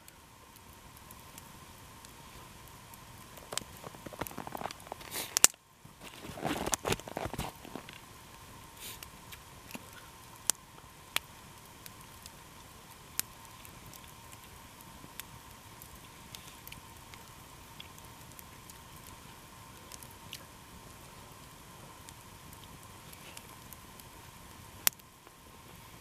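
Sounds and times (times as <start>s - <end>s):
campfire crackling: 0.0s - 26.0s
fire popping: 0.0s - 26.0s
rustling: 3.4s - 8.0s.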